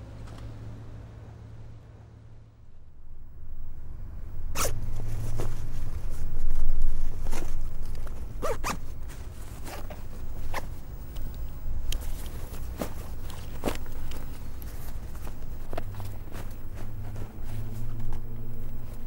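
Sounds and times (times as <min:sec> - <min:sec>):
steady low rumble: 0:00.0 - 0:19.0
zipper rasping pulls: 0:04.5 - 0:05.4, 0:08.3 - 0:08.9.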